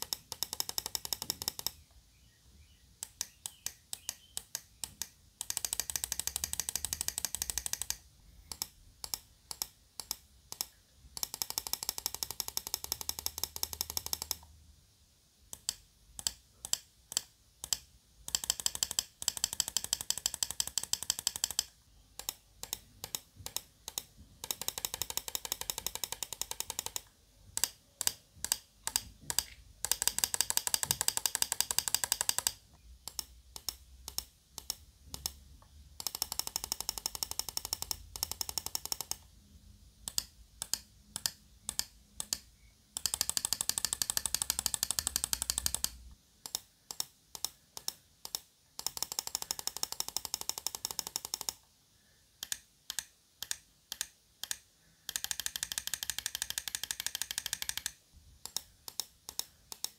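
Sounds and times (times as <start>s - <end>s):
mouse button clicking: 3.0s - 12.1s.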